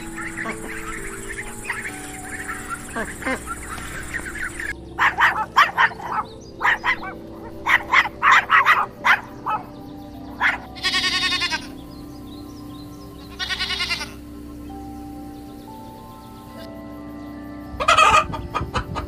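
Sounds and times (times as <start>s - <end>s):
goat bleating: 10.8s - 11.7s, 13.3s - 14.2s.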